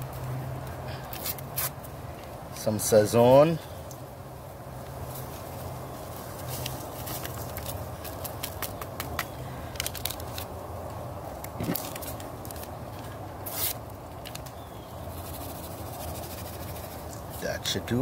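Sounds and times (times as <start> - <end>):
foil packet crinkling and tearing: 6.6 - 10.5, 11.4 - 12.7.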